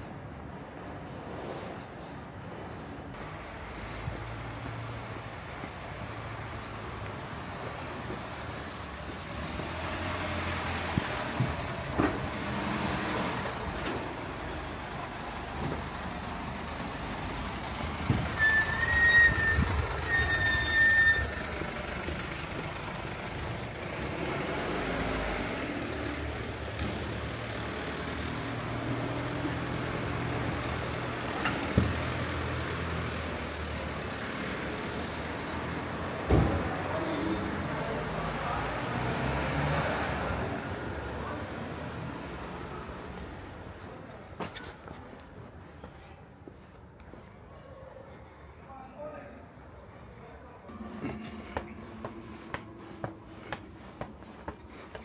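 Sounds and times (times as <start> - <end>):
vehicle rumble: 0.0 - 47.5, 49.4 - 55.0
high tone: 50.7 - 53.4.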